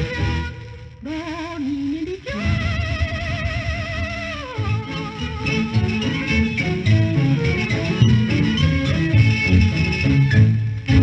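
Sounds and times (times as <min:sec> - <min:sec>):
pop ensemble playing: 0:04.4 - 0:11.0.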